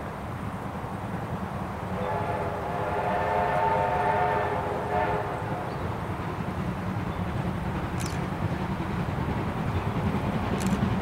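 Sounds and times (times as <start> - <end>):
locomotive steam whistle: 2.0 - 5.8.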